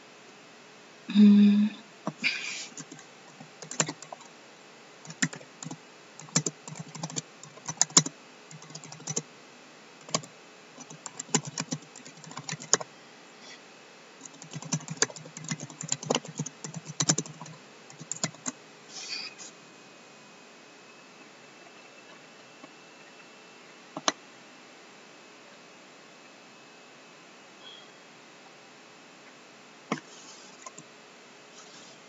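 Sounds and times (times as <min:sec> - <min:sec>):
computer keyboard typing: 0:02.7 - 0:04.3, 0:05.1 - 0:09.2, 0:10.0 - 0:12.9, 0:14.2 - 0:18.6, 0:30.6 - 0:30.8.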